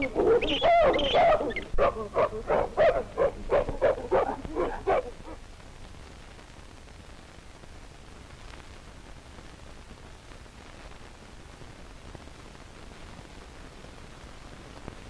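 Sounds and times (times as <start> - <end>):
film soundtrack hiss and crackle: 0.0 - 15.0.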